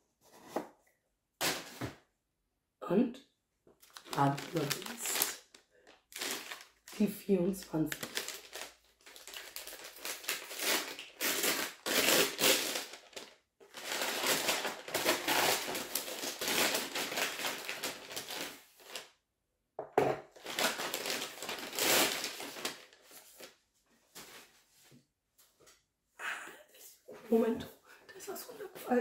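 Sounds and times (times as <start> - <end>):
paper wrapping rustling: 3.8 - 7.1, 7.7 - 19.1, 20.3 - 24.9.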